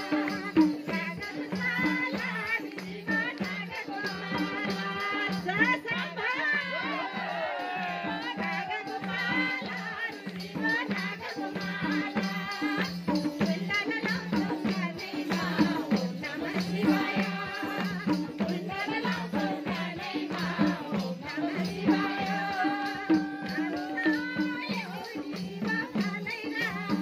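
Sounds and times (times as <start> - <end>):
hand drums beating: 0.0 - 27.0
tambourine jingling: 0.0 - 27.0
woman singing: 0.0 - 27.0.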